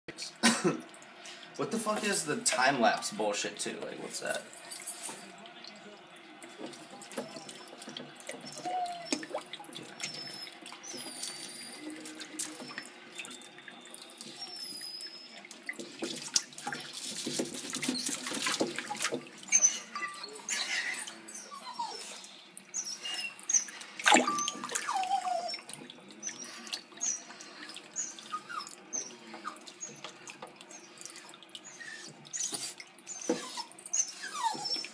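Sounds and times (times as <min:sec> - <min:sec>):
water splashing and sloshing: 0:00.4 - 0:34.9
sharp splash: 0:24.0 - 0:24.8.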